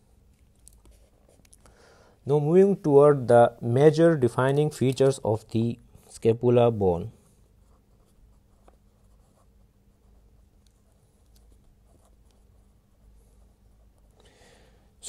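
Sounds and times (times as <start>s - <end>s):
pen scratching on paper: 7.6s - 14.1s.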